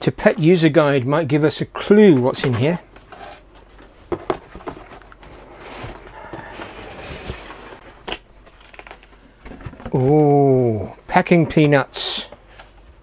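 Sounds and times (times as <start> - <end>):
cardboard scraping and rustling: 2.4 - 8.9.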